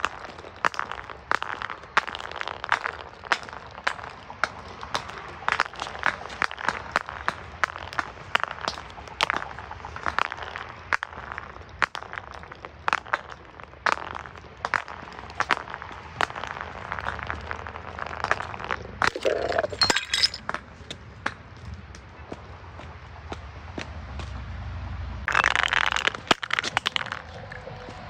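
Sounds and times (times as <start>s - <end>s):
glass bottles breaking: 18.1s - 20.6s, 25.3s - 27.4s.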